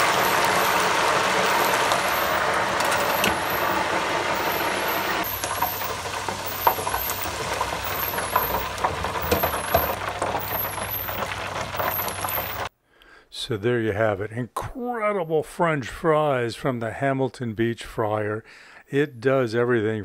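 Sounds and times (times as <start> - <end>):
fries sizzling in hot oil: 0.0 - 12.7.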